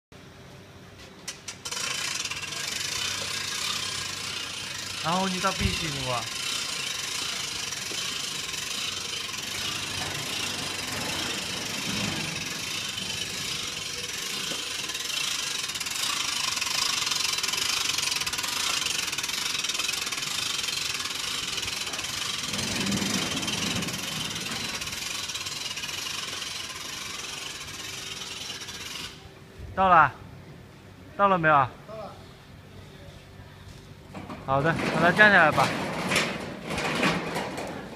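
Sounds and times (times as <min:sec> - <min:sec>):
winch ratchet clicking: 0:01.3 - 0:29.2.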